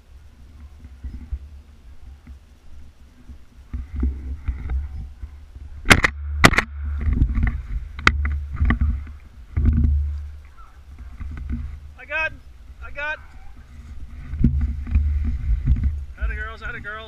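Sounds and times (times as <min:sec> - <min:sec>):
handling and rustling noise: 0:00.2 - 0:17.0
shotgun shots: 0:05.9 - 0:06.8.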